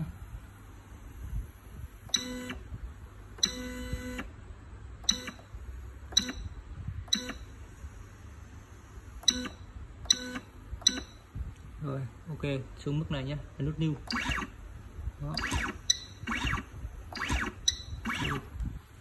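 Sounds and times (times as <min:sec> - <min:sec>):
low steady hum: 0:00.0 - 0:19.0
short tonal beeps: 0:09.2 - 0:11.2, 0:15.4 - 0:16.6, 0:17.2 - 0:18.4.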